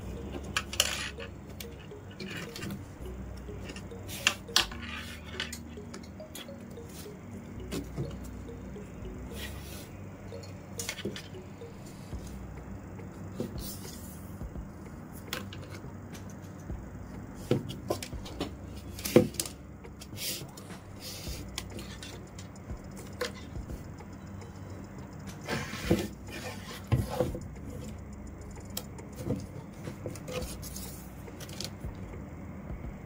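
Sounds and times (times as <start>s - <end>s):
low hum: 0.0s - 33.0s
plastic strands clicking and tapping: 26.1s - 30.6s.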